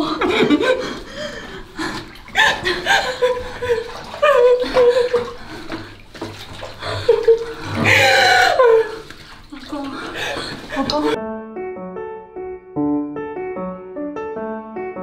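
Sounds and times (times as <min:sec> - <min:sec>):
laughter and giggling: 0:00.0 - 0:01.5, 0:02.4 - 0:05.4, 0:06.8 - 0:09.1
water splashing in bathtub: 0:00.0 - 0:11.2.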